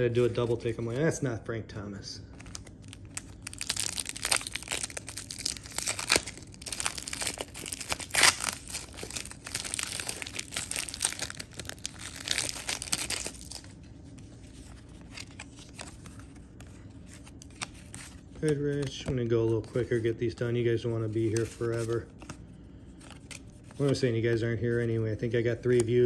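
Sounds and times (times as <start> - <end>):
foil wrapper crinkling and tearing: 2.4 - 13.8.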